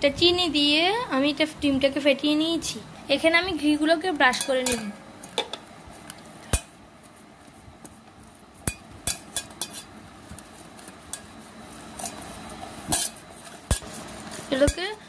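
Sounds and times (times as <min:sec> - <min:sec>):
brush clinking against metal bowl: 0:04.3 - 0:05.5, 0:08.6 - 0:15.0
faint brush scraping: 0:09.6 - 0:14.6.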